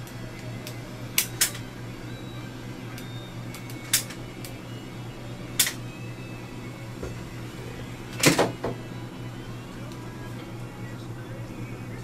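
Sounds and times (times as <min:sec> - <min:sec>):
low equipment hum: 0:00.0 - 0:12.0.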